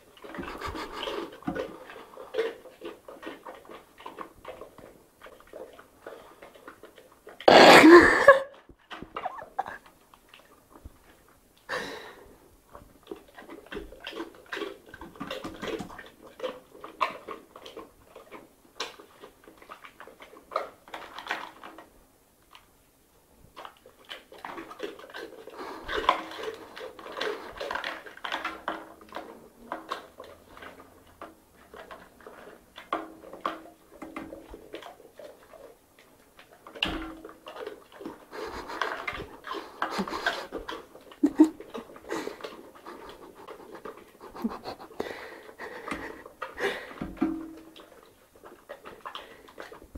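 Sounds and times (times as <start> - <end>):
person chewing noisily: 0.0 - 22.7, 23.4 - 49.9.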